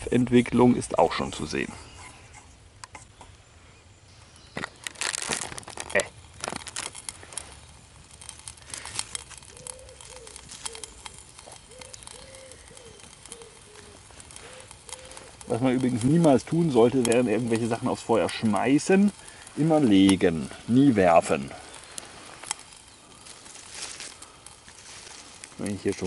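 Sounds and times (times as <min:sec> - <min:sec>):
campfire crackling and popping: 0:00.0 - 0:03.6, 0:04.2 - 0:26.0
bird calling low notes: 0:08.6 - 0:18.0.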